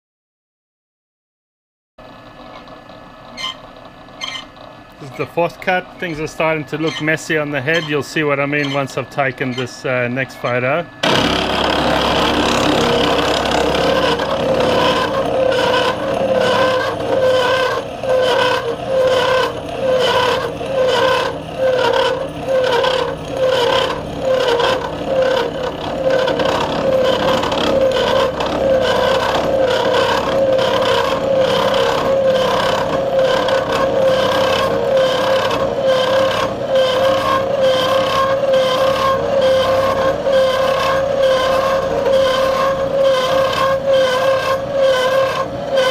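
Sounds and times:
milling machine running: 0:02.2 - 0:45.9
steady gear squeak: 0:02.4 - 0:45.9.

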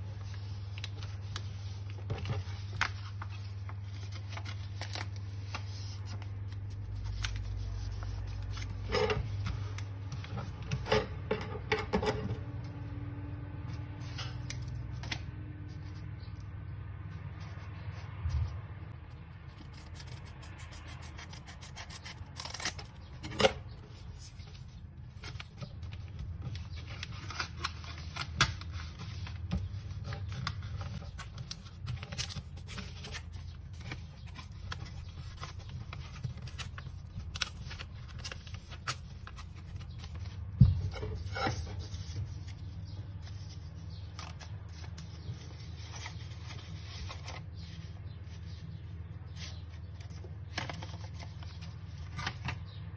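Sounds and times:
paper rustling and crinkling: 0:00.0 - 0:11.2, 0:19.4 - 0:52.8
scissors snipping paper: 0:19.6 - 0:23.0.

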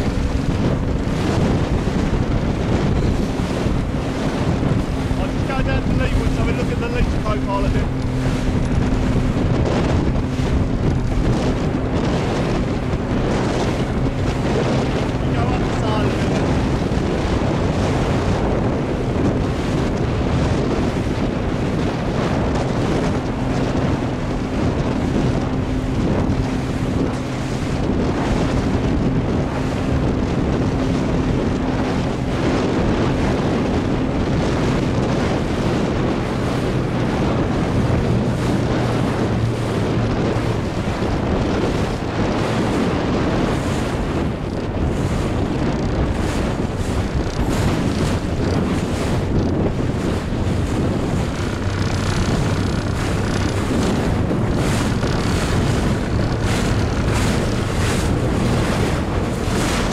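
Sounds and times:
boat engine humming: 0:00.0 - 0:59.9
rushing water and breaking chop: 0:00.0 - 0:59.9
wind buffeting microphone: 0:00.0 - 0:59.9.

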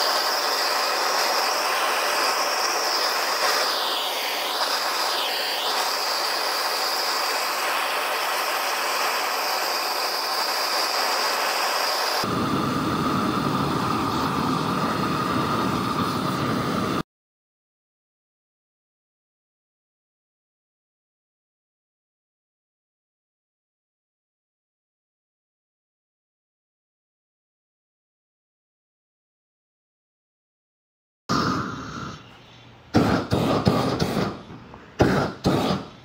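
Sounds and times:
propane torch flame hissing: 0:00.0 - 0:17.0, 0:31.3 - 0:36.0.

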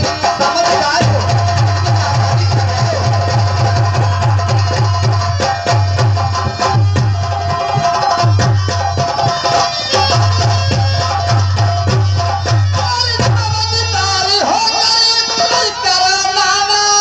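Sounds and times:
folk music with hand drums: 0:00.0 - 0:17.0.

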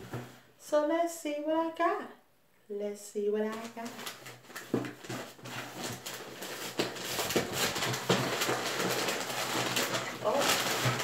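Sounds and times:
clothing and packaging rustling: 0:00.0 - 0:00.5, 0:03.5 - 0:11.0.

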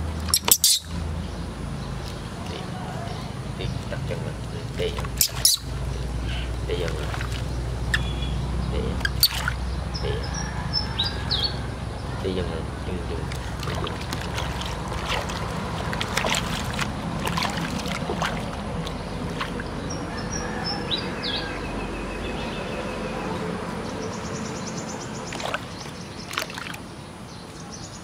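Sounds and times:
water sloshing in plastic basin: 0:04.4 - 0:08.0, 0:08.9 - 0:09.7, 0:13.2 - 0:20.7, 0:25.2 - 0:27.0.

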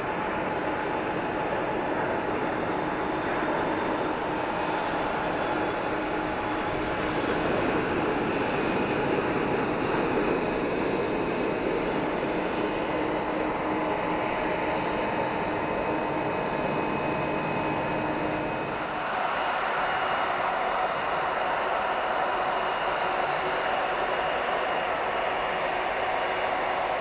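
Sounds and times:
airliner engines taxiing: 0:00.0 - 0:27.0
airliner jet engine rumble: 0:00.0 - 0:27.0.

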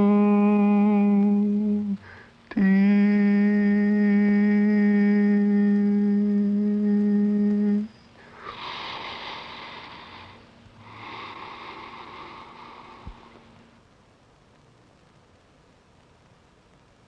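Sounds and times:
held vocal note: 0:00.0 - 0:10.2
soft hissing swells: 0:00.0 - 0:17.0.

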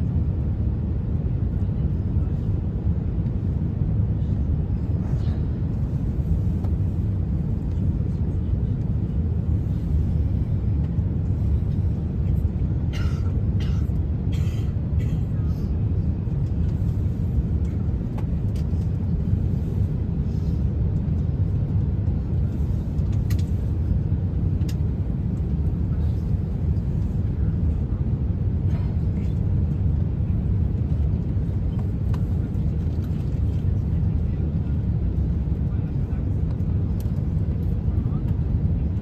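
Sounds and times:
airliner cabin rumble: 0:00.0 - 0:39.0.

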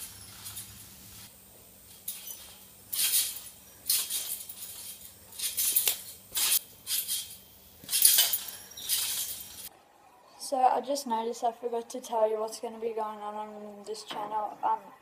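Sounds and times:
trampoline springs jangling: 0:00.0 - 0:01.0, 0:01.8 - 0:09.7.

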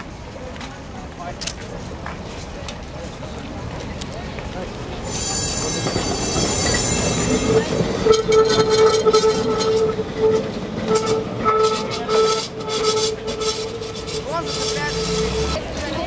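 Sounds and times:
tram rumbling on track: 0:00.0 - 0:16.0
steady tone: 0:05.1 - 0:15.6.

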